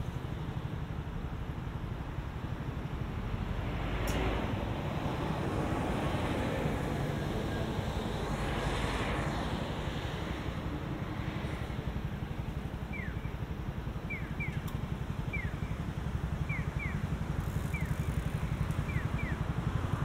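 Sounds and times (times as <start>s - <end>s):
bird chirping: 12.9s - 13.3s, 14.0s - 14.7s, 15.3s - 15.8s, 16.5s - 17.0s, 18.8s - 19.4s.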